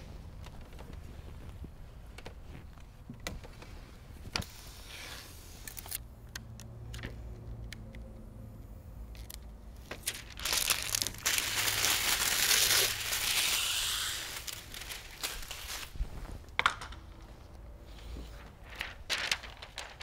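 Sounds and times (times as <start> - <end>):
film liner peeling hiss: 11.4 - 16.1
hand pump sprayer spritzes: 13.2 - 14.6.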